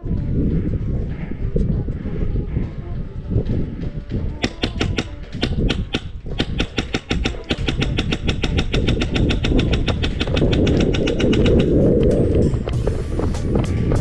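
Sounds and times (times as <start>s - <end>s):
airsoft rifle firing full auto: 4.4s - 11.2s.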